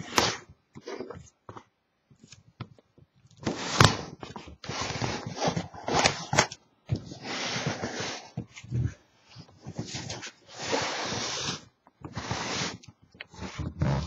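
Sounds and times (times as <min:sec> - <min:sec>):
cardboard scraping and rubbing: 0:03.4 - 0:14.0.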